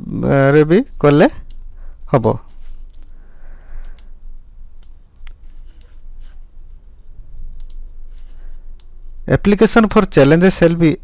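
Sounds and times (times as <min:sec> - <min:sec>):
faint low hum: 0:00.0 - 0:11.0
computer mouse clicks: 0:03.8 - 0:04.1, 0:04.8 - 0:06.0, 0:07.5 - 0:07.9.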